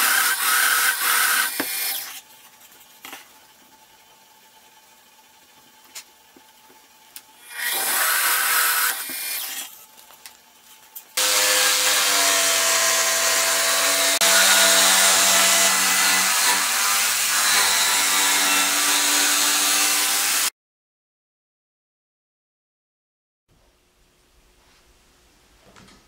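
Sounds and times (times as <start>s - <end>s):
drill press boring into wood: 0.0s - 2.2s, 7.4s - 9.7s, 11.2s - 20.5s
jigsaw cutting wood: 0.0s - 2.3s, 7.4s - 9.7s, 11.2s - 20.5s.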